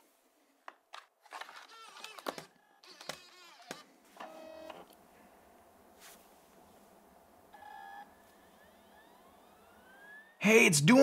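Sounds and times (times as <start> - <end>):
optical drive whirring: 0.7 - 5.0, 7.5 - 10.4.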